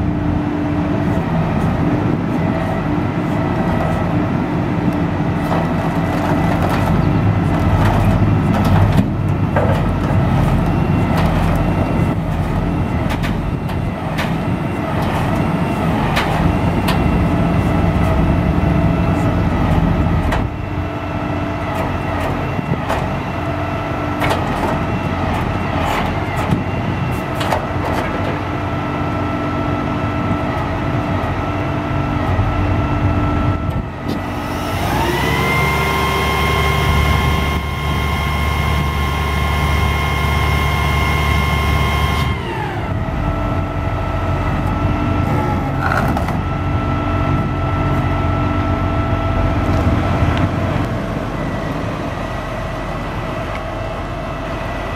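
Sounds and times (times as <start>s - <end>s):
diesel engine idling and revving: 0.0s - 54.9s
crane hydraulics: 33.7s - 54.9s.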